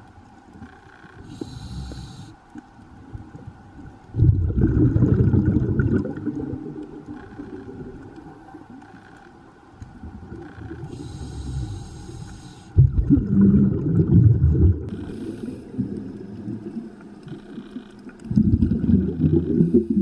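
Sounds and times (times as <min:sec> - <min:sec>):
faint steady hum: 0:00.0 - 0:20.0
regulator hissing inhale: 0:01.2 - 0:02.4, 0:10.8 - 0:12.8, 0:14.9 - 0:16.1
exhaled bubbles rumbling: 0:03.1 - 0:08.4, 0:12.8 - 0:20.0.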